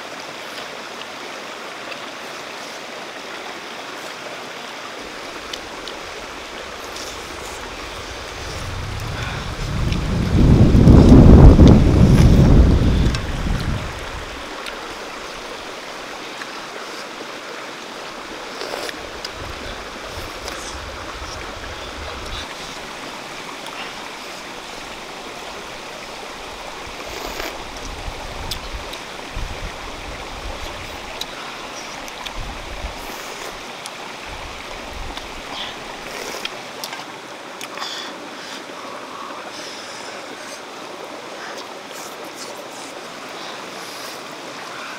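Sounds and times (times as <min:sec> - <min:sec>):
stream running over rocks: 0:00.0 - 0:44.9
low rumbles: 0:06.3 - 0:14.4.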